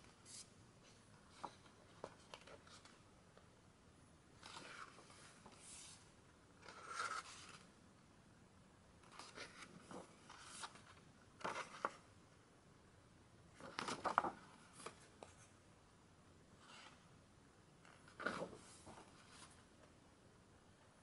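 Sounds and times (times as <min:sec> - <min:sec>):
book pages turning: 0:06.6 - 0:07.7, 0:09.0 - 0:12.0, 0:17.9 - 0:19.6.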